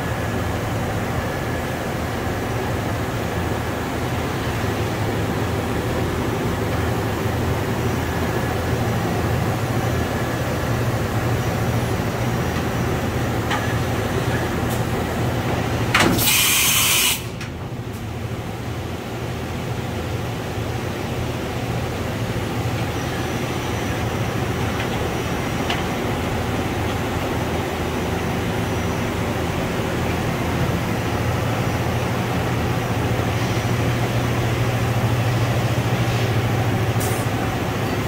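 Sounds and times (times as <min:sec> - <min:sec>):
loud hiss: 0:16.1 - 0:17.4.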